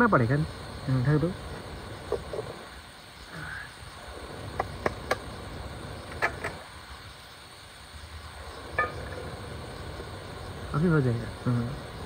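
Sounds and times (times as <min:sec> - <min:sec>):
background noise: 0:00.0 - 0:12.0
pot lid clinking: 0:08.8 - 0:09.2.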